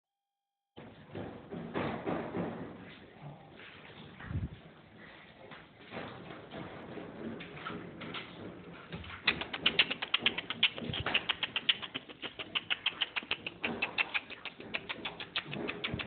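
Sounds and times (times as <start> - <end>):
puppy claws clicking on concrete: 8.2 - 16.0.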